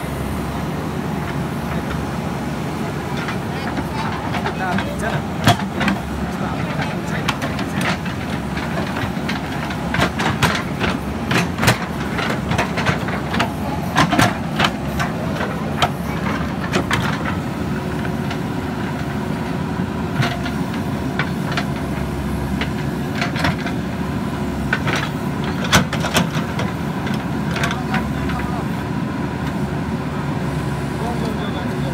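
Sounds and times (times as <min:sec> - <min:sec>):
diesel engine running: 0:00.0 - 0:31.9
digger bucket clanking: 0:00.1 - 0:31.9.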